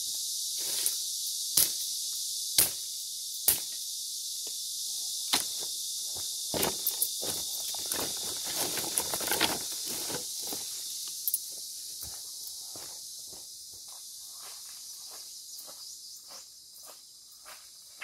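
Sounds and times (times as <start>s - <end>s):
high insect chorus: 0.0s - 18.0s
rustling and crunching: 6.4s - 11.4s.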